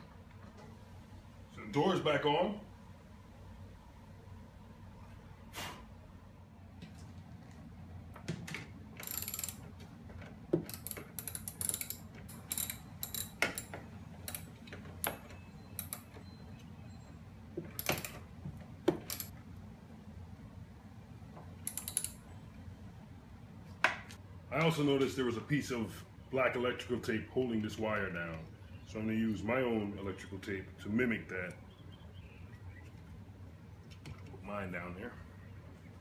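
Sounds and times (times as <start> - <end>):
ratchet wrench clicking: 9.0 - 9.6, 10.6 - 15.2, 19.0 - 19.3, 21.6 - 22.2.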